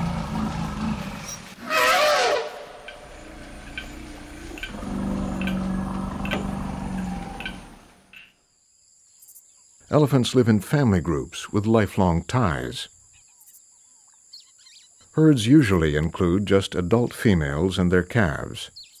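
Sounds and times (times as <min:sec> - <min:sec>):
low steady drone: 0:00.0 - 0:01.6, 0:02.5 - 0:08.1
elephant trumpeting: 0:00.0 - 0:08.0
faint regular ticks: 0:03.6 - 0:08.4.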